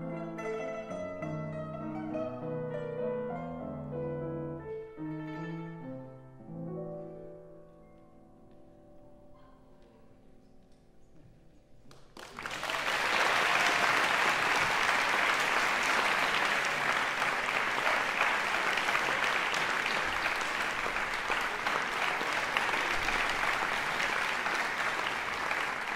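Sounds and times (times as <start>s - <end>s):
piano and guzheng chord: 0.0s - 6.0s
audience applause: 11.9s - 25.9s.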